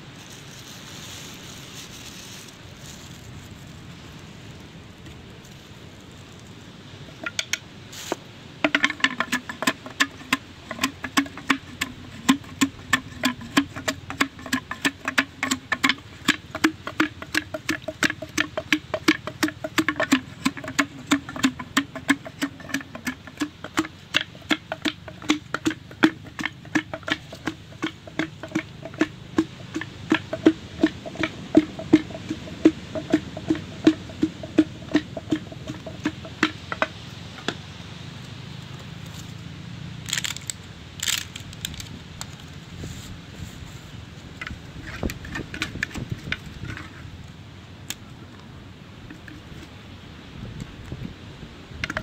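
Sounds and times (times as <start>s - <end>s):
pestle pounding in mortar: 7.1s - 7.6s, 8.6s - 37.6s, 44.4s - 47.0s.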